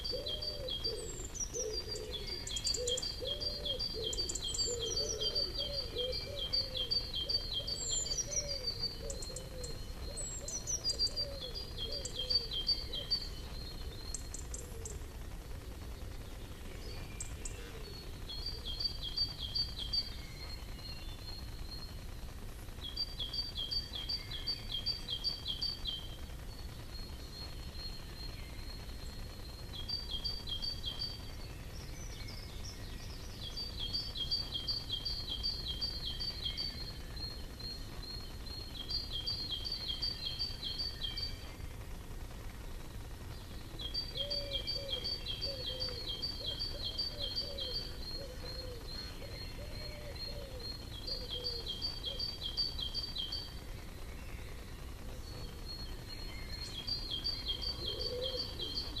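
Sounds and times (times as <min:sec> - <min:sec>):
songbird singing high notes: 0:55.3 - 0:59.0.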